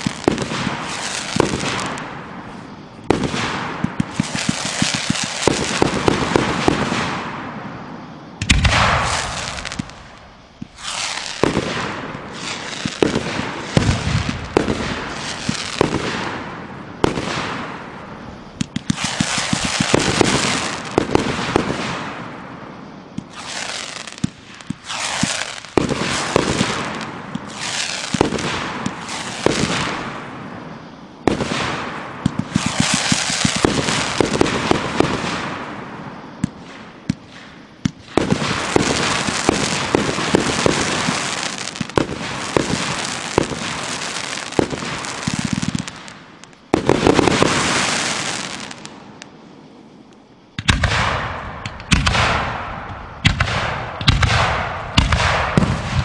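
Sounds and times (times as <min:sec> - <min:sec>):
hiss of burning stars: 0:00.0 - 0:07.6, 0:08.3 - 0:56.0
firework shells bursting: 0:08.4 - 0:22.4, 0:23.1 - 0:30.3.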